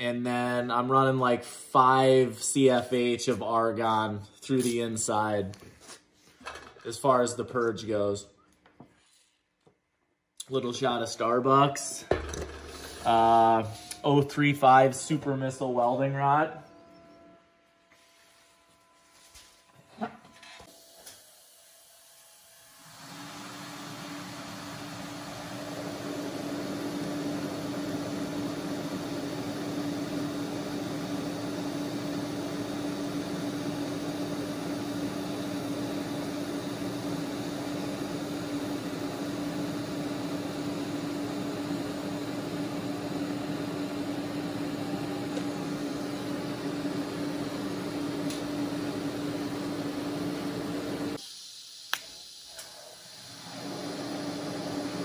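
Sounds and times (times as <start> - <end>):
welding arc hissing buzz: 22.2 - 55.0
steady hum: 24.8 - 51.2
click: 51.9 - 52.7.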